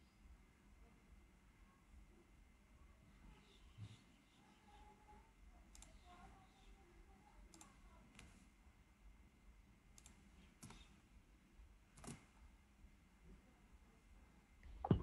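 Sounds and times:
computer mouse clicks: 5.7s - 6.1s, 7.5s - 8.4s, 10.0s - 10.9s, 12.0s - 12.3s.

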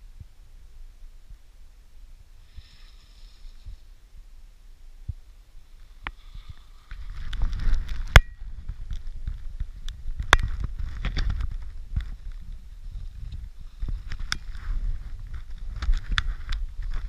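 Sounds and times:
wind buffeting microphone: 5.0s - 17.0s.

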